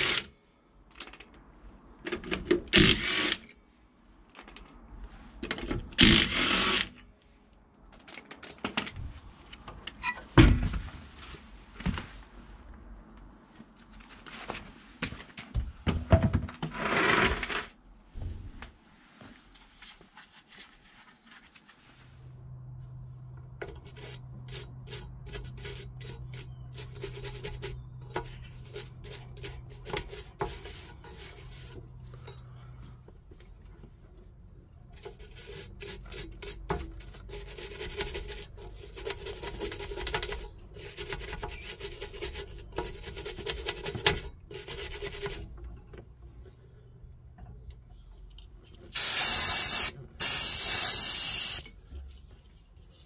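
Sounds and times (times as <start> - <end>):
wire brush scrubbing metal: 23.6 - 32.4, 34.9 - 45.4, 49.0 - 51.6.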